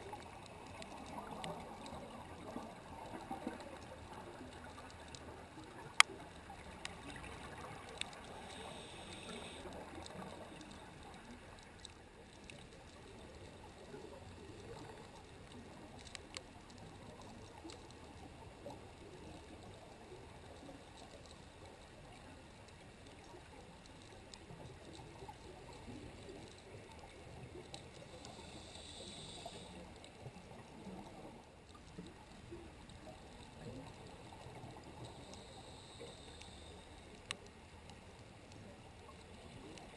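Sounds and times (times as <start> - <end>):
underwater clicks: 0.0 - 19.9
underwater rushing hiss: 7.2 - 10.6, 28.0 - 30.0, 34.3 - 37.1.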